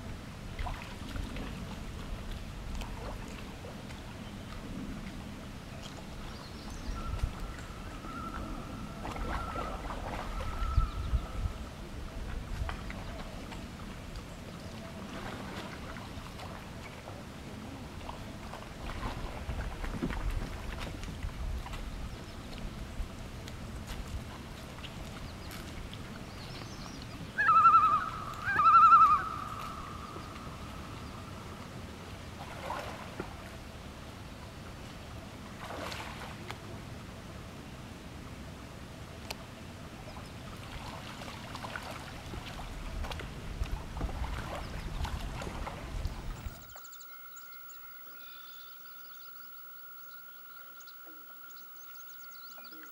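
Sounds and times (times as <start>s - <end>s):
loon tremolo call: 27.4s - 30.2s, 46.6s - 52.9s
short low bird calls: 27.4s - 31.4s
small birds chirping: 46.4s - 52.9s
steady high drone: 46.5s - 52.9s.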